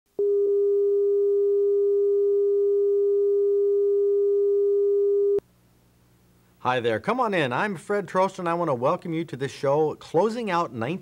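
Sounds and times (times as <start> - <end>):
steady sine tone: 0.2 - 5.4.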